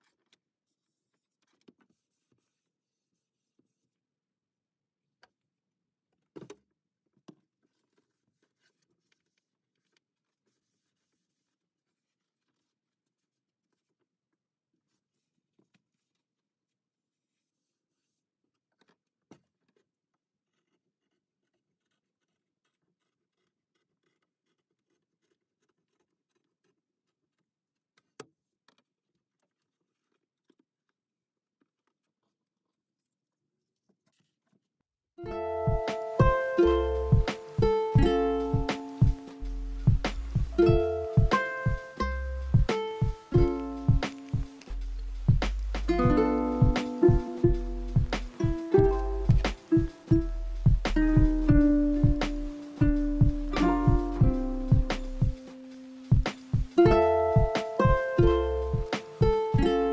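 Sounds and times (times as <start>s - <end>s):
scratching and rubbing on wood: 0.0s - 3.8s, 7.3s - 14.1s, 17.0s - 31.0s, 31.6s - 34.7s, 35.9s - 56.8s
cloth wiping plywood: 0.7s - 4.0s, 7.6s - 14.0s, 17.0s - 18.3s, 35.9s - 57.8s
light taps and scuffs: 35.7s - 59.9s.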